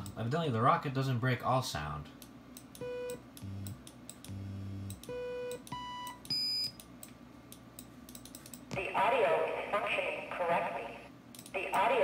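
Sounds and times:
short pure test beeps: 0:05.1 - 0:06.8.

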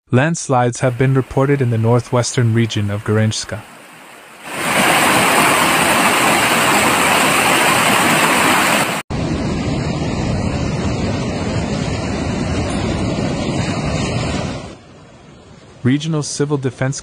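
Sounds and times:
floodwater rushing: 0:00.8 - 0:09.0.

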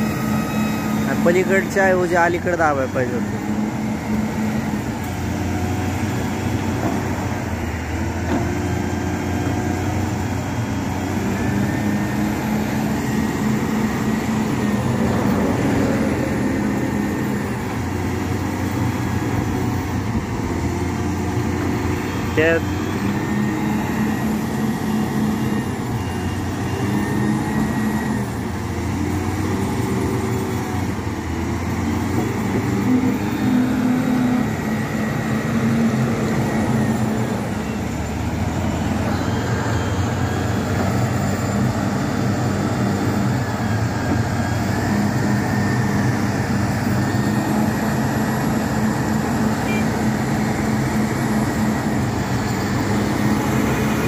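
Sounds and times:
diesel engine running: 0:00.0 - 0:54.0.

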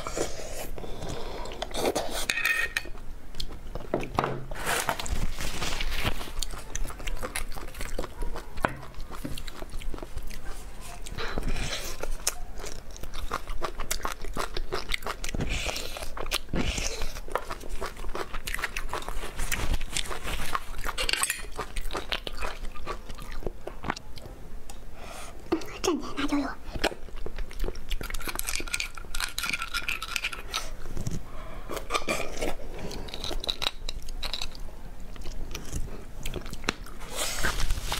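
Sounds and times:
chewing and biting: 0:04.9 - 0:24.3, 0:26.8 - 0:37.7.

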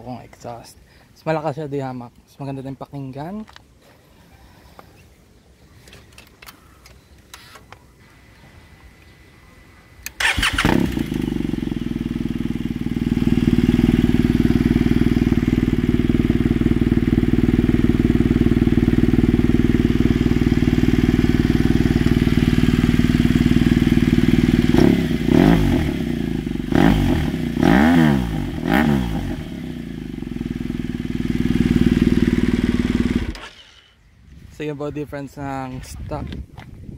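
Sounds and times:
motorcycle engine starting: 0:10.0 - 0:34.1
motorcycle engine idling: 0:10.2 - 0:33.3
motorcycle engine revving: 0:10.2 - 0:34.0.

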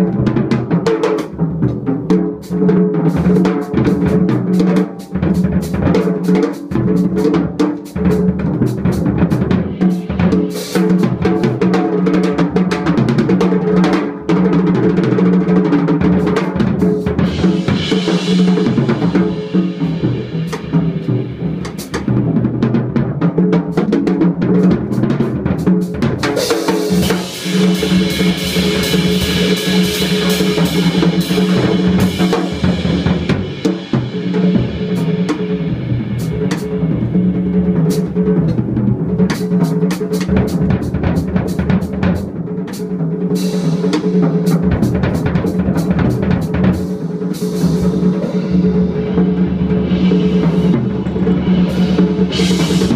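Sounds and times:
drum kit played busily: 0:00.0 - 0:52.9
cymbal washes: 0:17.0 - 0:22.2, 0:26.4 - 0:38.2.

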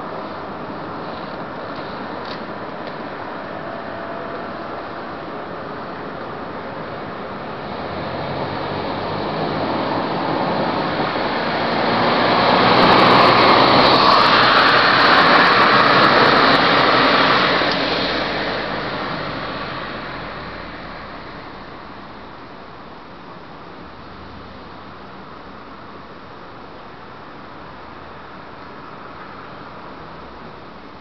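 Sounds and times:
car passing by: 0:07.3 - 0:22.4.

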